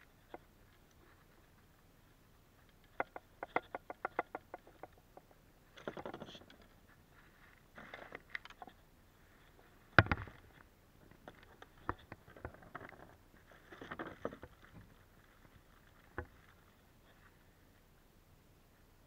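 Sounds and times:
rustling scrapes: 0:05.8 - 0:09.9.

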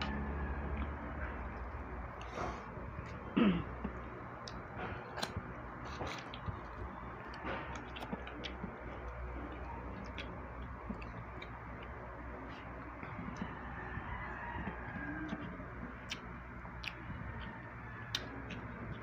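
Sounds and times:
faint low hum: 0:00.0 - 0:19.0
chewing smacks: 0:03.8 - 0:12.0, 0:14.6 - 0:17.5, 0:18.1 - 0:19.0.

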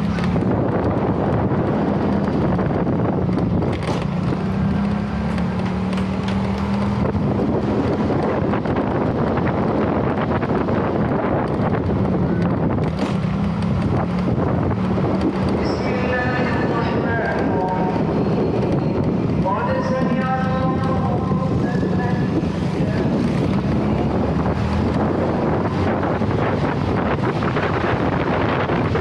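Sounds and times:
vehicle engine humming: 0:00.0 - 0:29.0
wind noise on microphone: 0:00.0 - 0:29.0.

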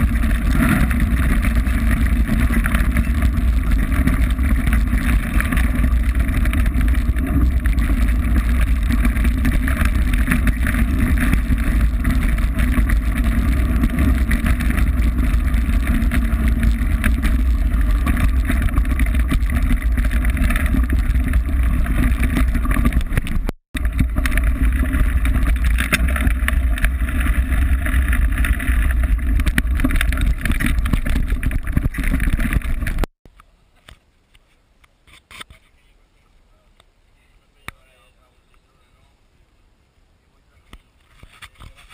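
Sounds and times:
wind buffeting microphone: 0:00.0 - 0:33.1
bike tyre and frame noise: 0:00.0 - 0:35.8, 0:40.7 - 0:41.9.

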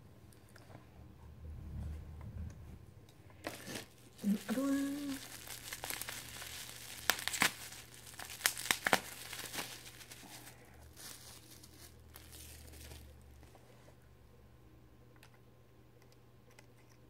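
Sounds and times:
bubble wrap crackling and rustling: 0:03.4 - 0:13.8.

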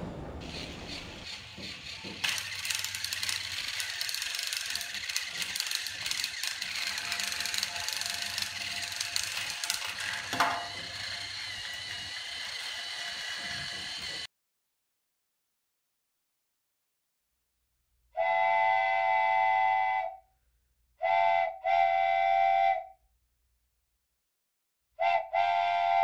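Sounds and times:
toy train motors whirring: 0:00.4 - 0:14.3.

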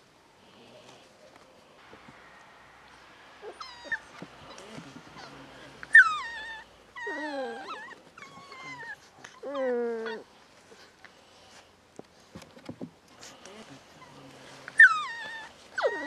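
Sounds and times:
puppies whining and yelping: 0:03.4 - 0:10.9, 0:13.9 - 0:16.0.

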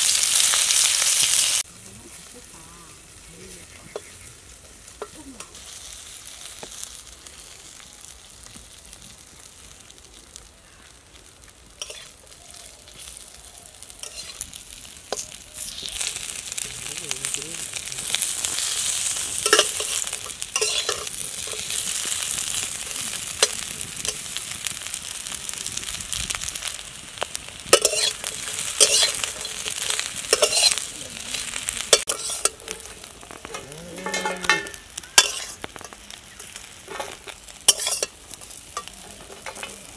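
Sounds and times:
fish sizzling in oil: 0:00.0 - 0:39.9
metal spatula scraping a pan: 0:11.8 - 0:12.3, 0:14.0 - 0:14.5, 0:17.2 - 0:22.6, 0:27.7 - 0:30.9, 0:31.8 - 0:39.9.

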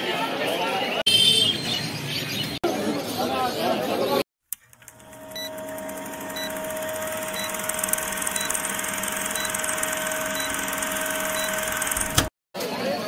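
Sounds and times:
projector whirring rattle: 0:04.6 - 0:12.3.

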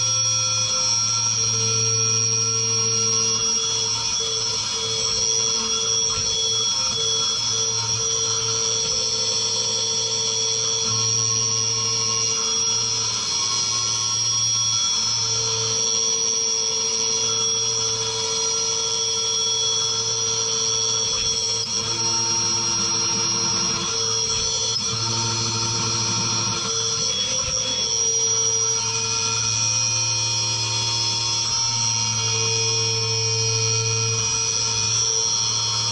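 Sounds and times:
high-pitched spindle whine: 0:00.0 - 0:35.9
mill cutting tones: 0:17.1 - 0:34.1.

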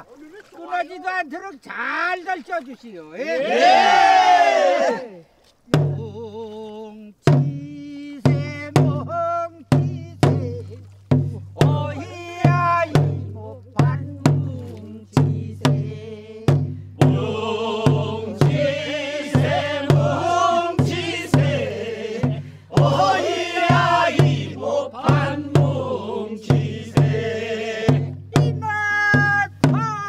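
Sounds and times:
drum beating steadily: 0:05.7 - 0:06.4, 0:07.2 - 0:30.0
group singing in unison: 0:14.3 - 0:28.4.

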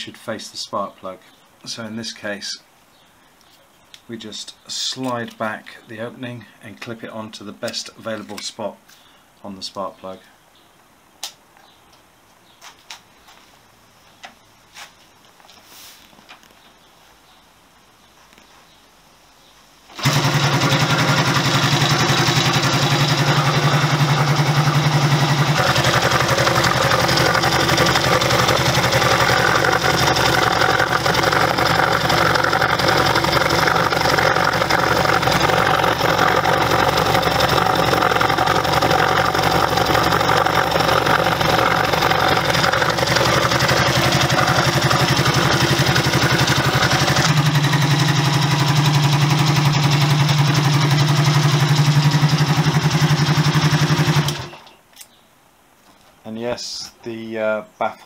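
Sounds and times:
exhaust baffles rattling: 0:19.9 - 0:53.2
motorcycle engine idling: 0:19.9 - 0:54.6.

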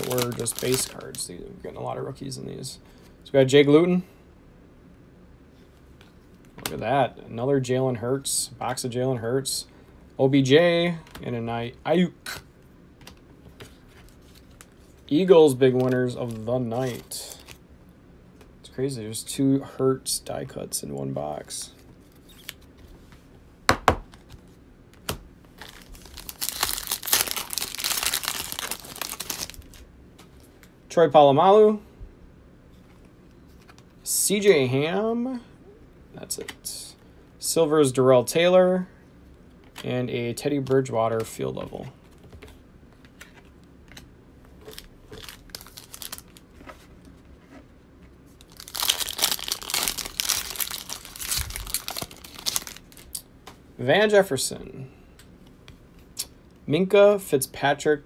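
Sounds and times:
foil wrapper tearing and crinkling: 0:00.0 - 0:01.2, 0:25.6 - 0:29.8, 0:44.7 - 0:46.4, 0:48.4 - 0:53.2.

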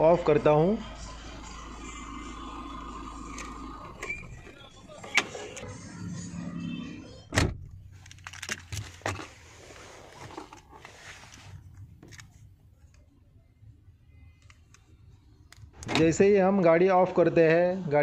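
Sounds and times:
car door shutting: 0:01.6 - 0:05.7, 0:07.3 - 0:07.8
rustling handling noise: 0:07.9 - 0:12.9.

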